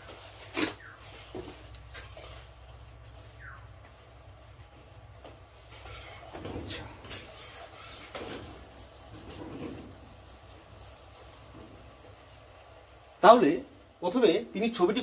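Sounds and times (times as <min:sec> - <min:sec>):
hand rubbing whiteboard: 0:05.8 - 0:11.7.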